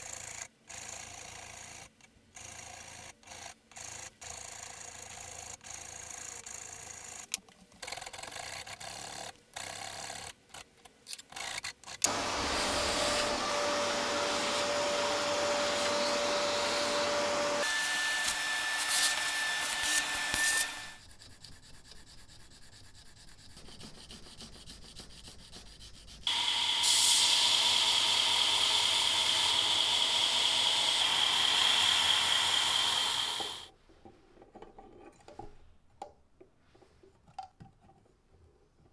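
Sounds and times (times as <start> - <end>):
power tool running: 12.0 - 21.0, 26.3 - 33.7
hand file rasping on wood: 18.2 - 26.3.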